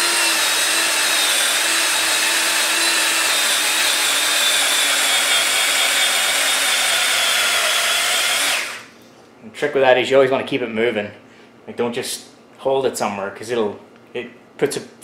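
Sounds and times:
cordless drill whining: 0.0 - 8.9.

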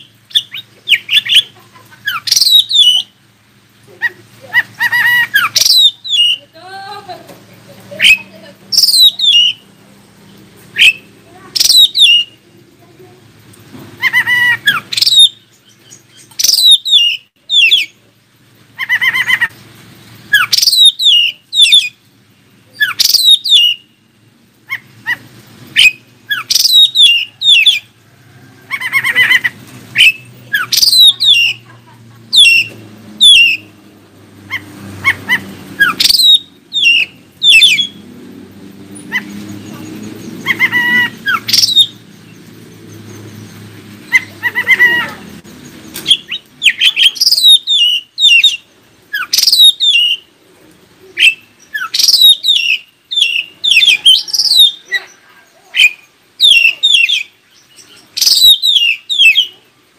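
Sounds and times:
bird singing whistled notes: 2.1 - 3.2, 4.8 - 6.5, 8.0 - 9.7, 10.7 - 12.4, 14.0 - 18.0, 20.3 - 22.0, 22.8 - 24.0, 25.8 - 27.9, 28.6 - 31.6, 32.3 - 33.8, 35.0 - 38.2, 39.0 - 50.3, 51.2 - 55.2, 55.8 - 59.6.

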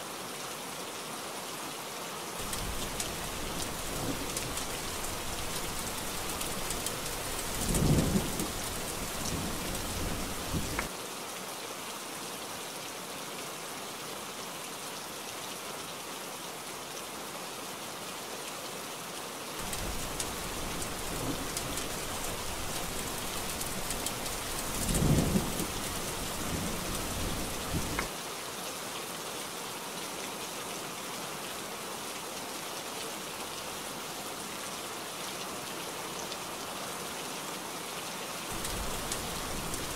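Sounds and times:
heavy rain: 0.1 - 39.9
thunder rolling: 2.5 - 10.9, 19.6 - 28.1.

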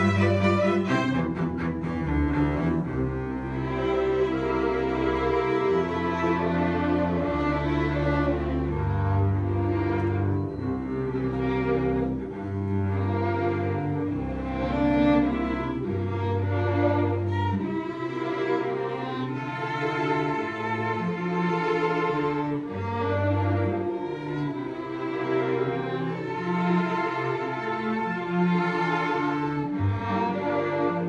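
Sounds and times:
string ensemble playing: 0.0 - 31.0.

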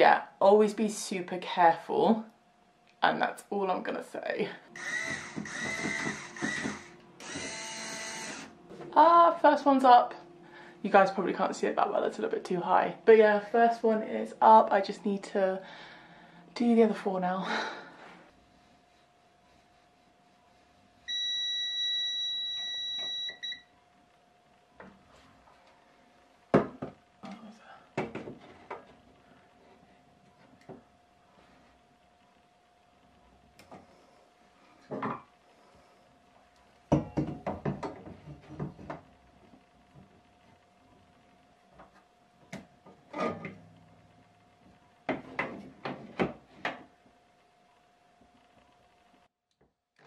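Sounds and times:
stud finder beeping: 4.8 - 8.6, 21.1 - 23.7.

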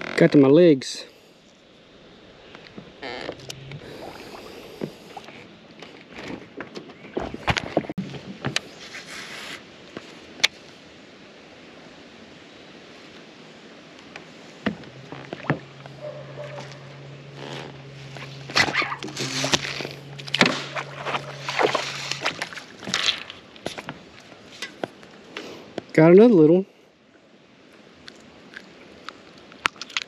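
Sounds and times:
trolling motor humming: 2.3 - 6.4, 14.6 - 24.1
fish splashing at surface: 18.3 - 23.6.

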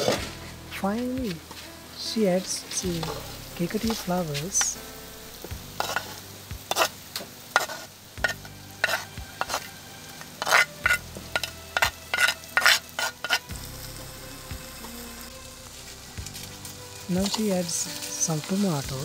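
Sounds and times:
food sizzling in oil: 0.0 - 19.0
spoon scraping earthenware: 5.8 - 6.9, 7.5 - 9.7, 10.4 - 13.5.

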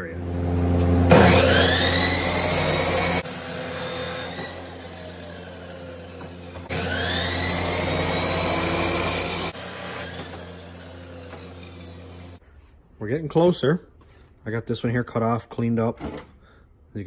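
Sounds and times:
chop saw cutting steel: 1.1 - 12.4.

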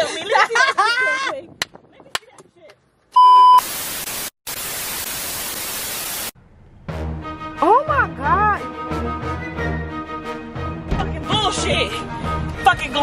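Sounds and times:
loud steady beep: 3.2 - 3.7
tv static hiss: 3.6 - 6.4.

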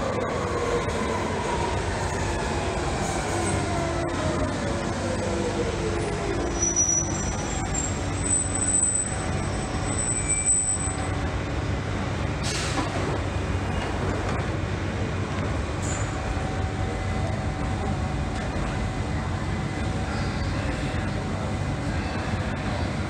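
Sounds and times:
train rumble: 0.0 - 23.0
high brake squeal: 6.4 - 11.2.

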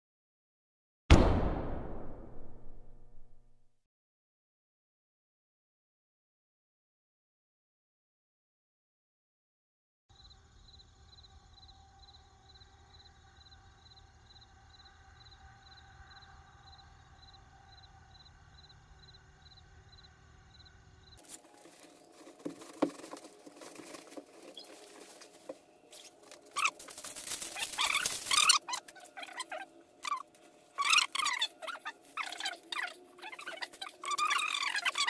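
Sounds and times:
protective coverall rustling: 21.2 - 31.2.

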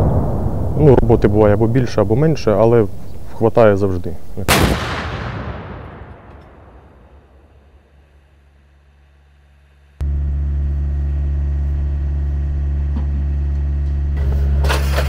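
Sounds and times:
artillery gun rumble: 0.0 - 8.2
low engine hum: 7.9 - 15.0.

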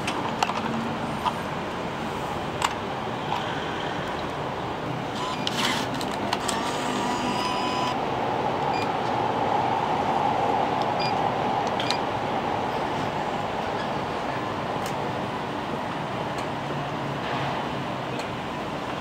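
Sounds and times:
bill acceptor motor whir: 5.1 - 8.0.

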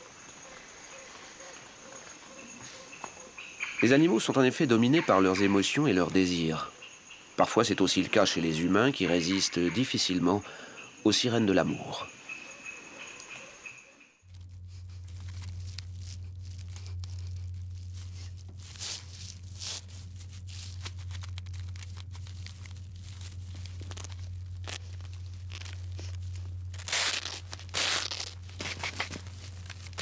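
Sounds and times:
steady low hum: 5.2 - 30.0.

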